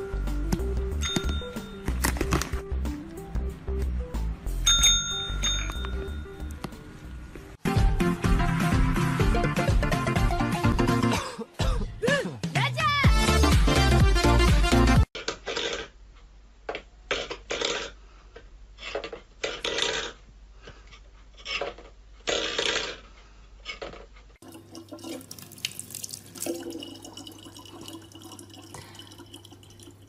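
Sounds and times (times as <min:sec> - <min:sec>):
water trickling into plastic bottle: 0:24.4 - 0:30.0.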